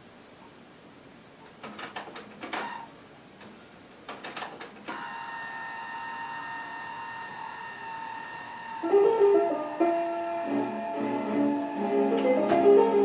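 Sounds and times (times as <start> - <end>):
tape mechanism clicking and clunking: 1.4 - 5.1
tape fast-winding whine: 4.9 - 13.0.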